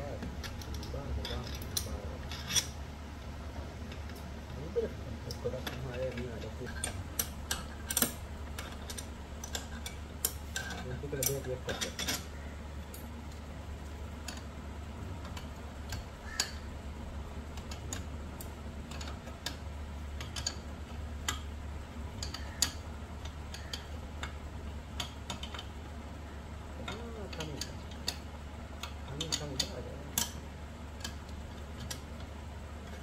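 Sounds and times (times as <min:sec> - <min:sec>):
steady low hum: 0:00.0 - 0:33.0
wrench clicking on metal: 0:00.4 - 0:02.7, 0:20.2 - 0:20.6, 0:22.2 - 0:24.4.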